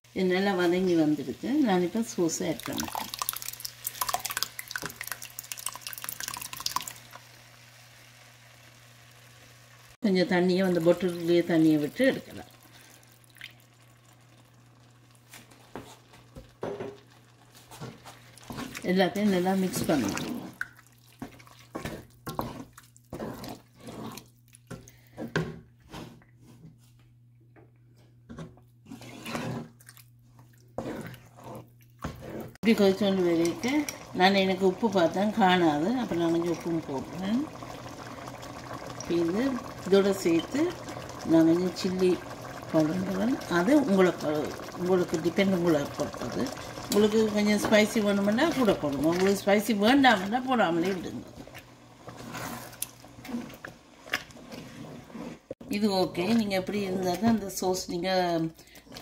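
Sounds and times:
sauce pouring into a pan: 2.5 - 10.0, 10.6 - 18.8, 33.0 - 53.1.

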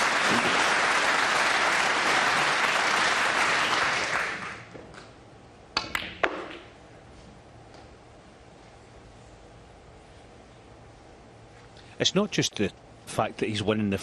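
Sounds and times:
audience applause: 0.0 - 4.7
snooker balls clicking: 5.7 - 6.8.

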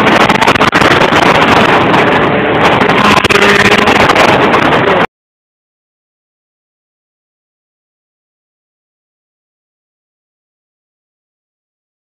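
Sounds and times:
wind buffeting microphone: 0.0 - 5.1.

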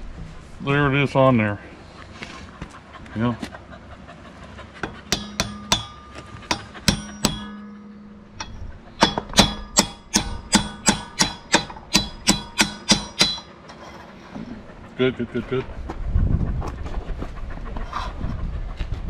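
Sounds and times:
hammer striking steel pipe: 4.8 - 13.7.

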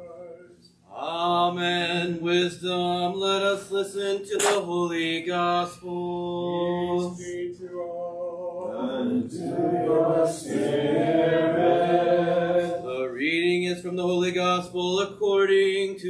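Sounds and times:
several voices singing a response: 7.0 - 13.1.

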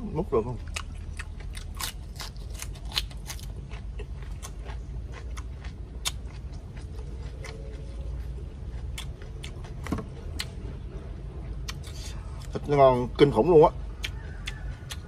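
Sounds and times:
steady low rumble: 0.0 - 15.0
crunchy chewing: 0.4 - 15.0.

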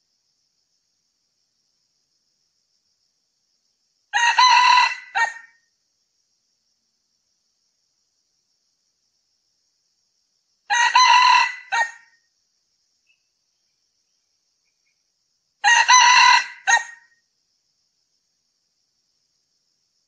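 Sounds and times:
rooster crowing: 4.1 - 5.6, 10.7 - 12.2, 15.6 - 17.1.

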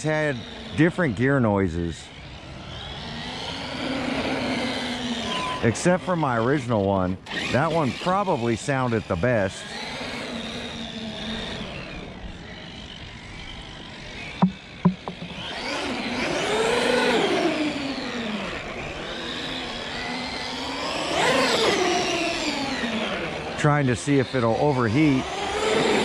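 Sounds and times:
electric motor and gears whining: 0.0 - 1.4, 2.0 - 26.0
sharp clicks: 14.4 - 15.4.

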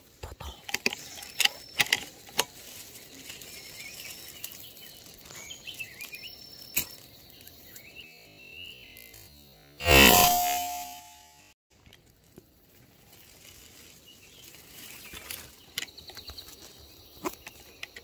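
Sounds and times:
small birds chirping: 0.0 - 9.3, 13.7 - 18.0.

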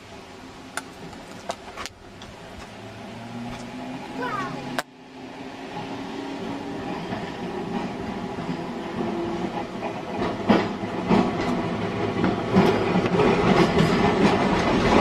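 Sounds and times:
tram running on rails: 0.0 - 15.0
wheels knocking over rail joints: 6.7 - 15.0.

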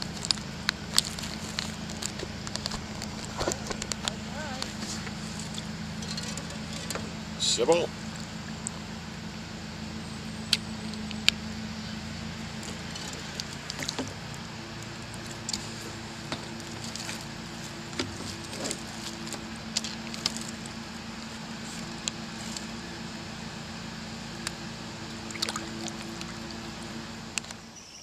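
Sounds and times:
low hum: 0.0 - 27.8
water splashing: 25.0 - 27.6.

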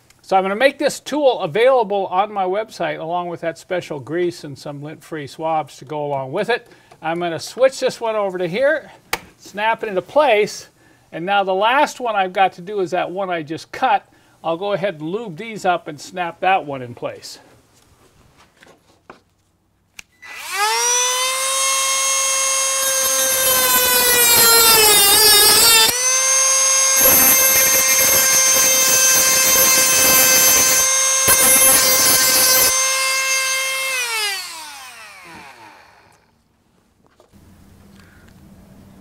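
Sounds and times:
rotary tool whining: 20.1 - 36.3
cut-off wheel grinding: 20.3 - 36.3.

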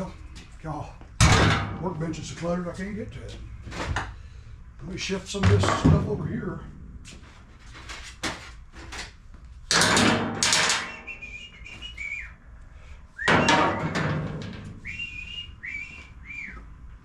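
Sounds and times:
tools clattering and scraping: 5.3 - 11.1, 13.3 - 14.8
man whistling: 10.8 - 12.4, 13.1 - 14.0, 14.8 - 16.8.

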